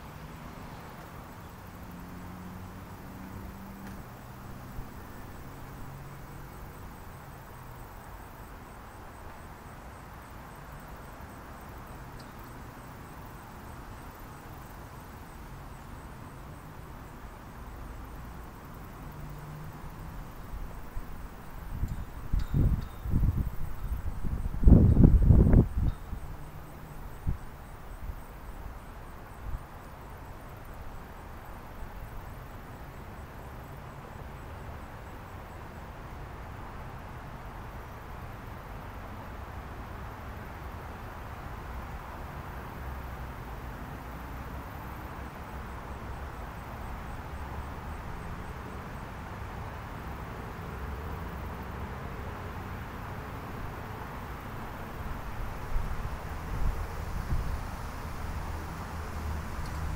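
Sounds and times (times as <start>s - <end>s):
outdoor ambience hiss: 0.0s - 59.9s
faint high chirp: 21.8s - 23.2s, 25.8s - 26.2s.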